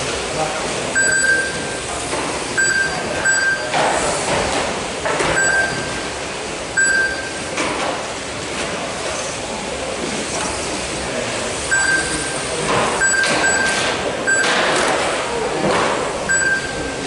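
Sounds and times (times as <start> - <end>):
short high beeps: 1.0 - 1.8, 2.6 - 3.8, 5.3 - 6.0, 6.8 - 7.4, 11.7 - 12.4, 13.0 - 14.8, 16.3 - 17.0.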